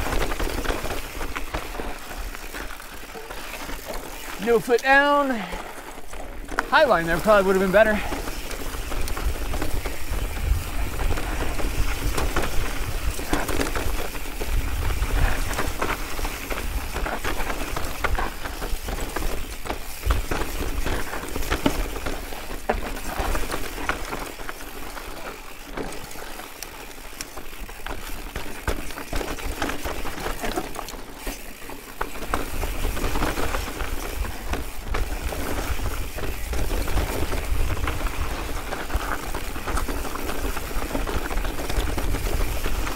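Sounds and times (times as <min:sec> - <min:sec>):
bike rattling over rocks: 0:00.0 - 0:42.9
wind rumbling on microphone: 0:08.0 - 0:23.9, 0:32.4 - 0:42.9.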